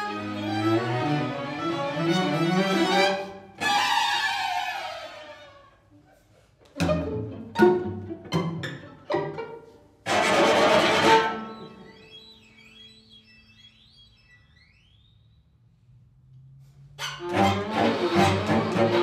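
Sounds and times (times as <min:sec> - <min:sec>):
string quartet playing: 0:00.0 - 0:05.6, 0:06.7 - 0:12.3, 0:17.0 - 0:19.0.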